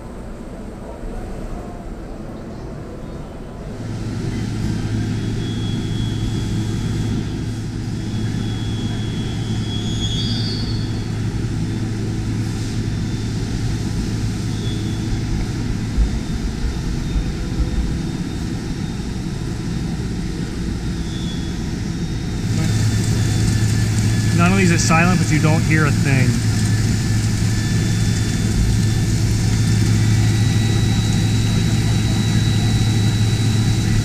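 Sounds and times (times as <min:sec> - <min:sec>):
machining centre drone: 0:03.6 - 0:34.0
low hum: 0:03.8 - 0:34.0
coolant spraying: 0:22.4 - 0:33.8.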